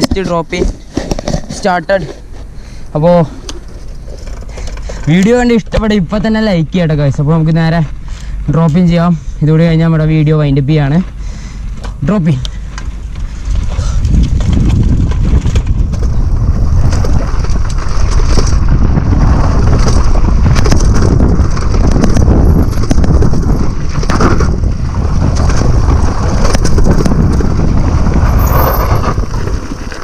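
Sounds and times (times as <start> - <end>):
bike knocks and rattles: 12.6 - 30.0
wind buffeting microphone: 13.0 - 30.0.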